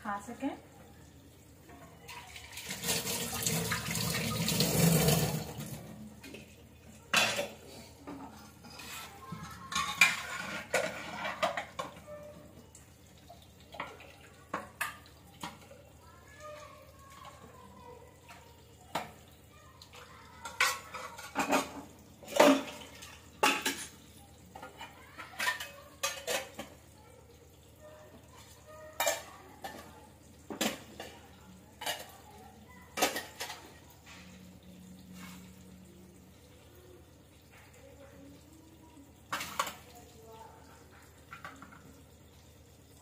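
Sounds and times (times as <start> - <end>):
metal pots set down on counter: 20.5 - 24.0.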